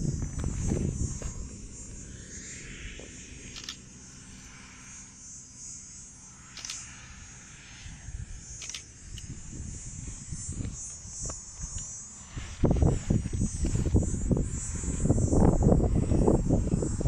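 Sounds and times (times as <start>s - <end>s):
wind rumbling on microphone: 0.0s - 3.7s, 7.7s - 17.0s
steady high hiss: 0.0s - 17.0s.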